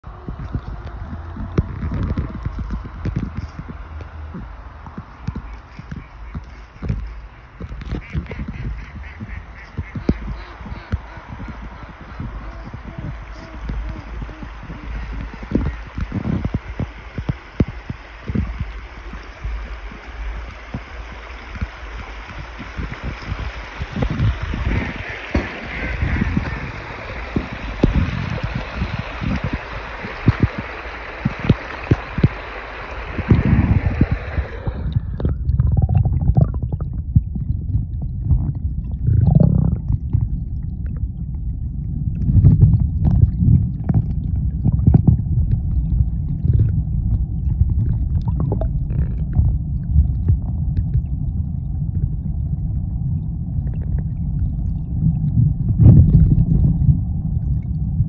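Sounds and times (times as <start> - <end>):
water splashing over stones: 0.0 - 37.3
muffled underwater rumble: 0.0 - 58.0
underwater gurgles and knocks: 0.0 - 58.0.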